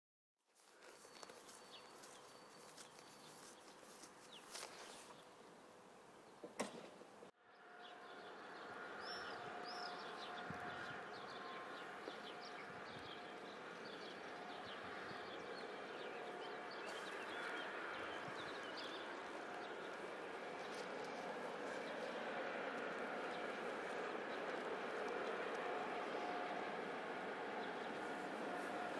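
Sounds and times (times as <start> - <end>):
small birds chirping: 0.6 - 6.5, 8.1 - 26.5
steady low hum: 7.2 - 28.9.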